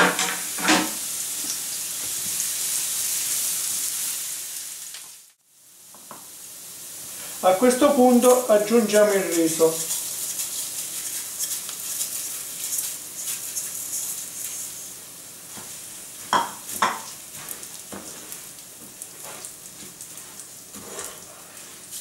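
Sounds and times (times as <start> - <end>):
rice sizzling in frying pan: 0.0 - 22.0
wooden spoon stirring: 8.2 - 14.8.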